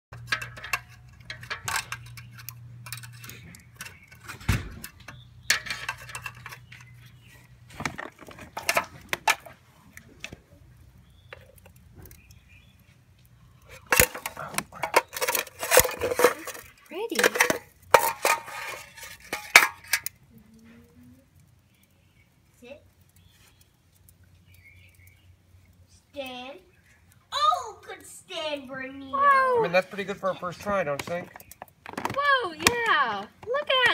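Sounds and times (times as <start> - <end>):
metal tongs clinking and scraping: 0.1 - 7.3, 8.5 - 9.5, 13.6 - 20.2
low steady hum: 0.1 - 29.5.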